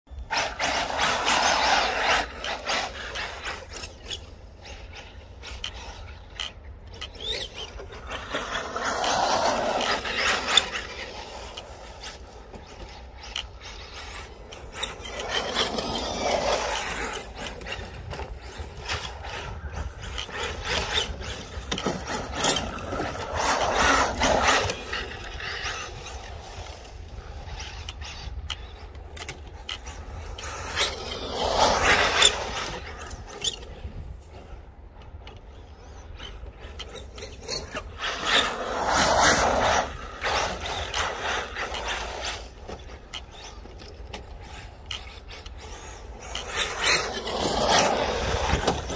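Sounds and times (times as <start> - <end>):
tyres sliding on dirt: 0.2 - 48.9.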